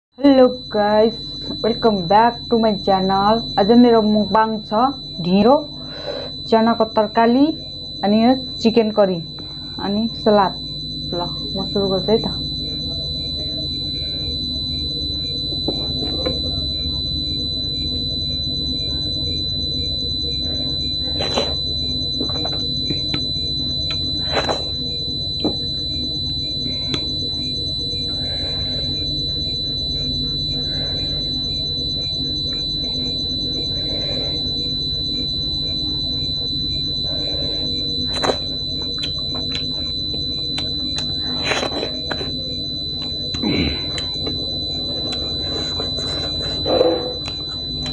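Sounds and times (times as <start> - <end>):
high-pitched whine: 0.2 - 47.9
low hum: 0.2 - 47.9.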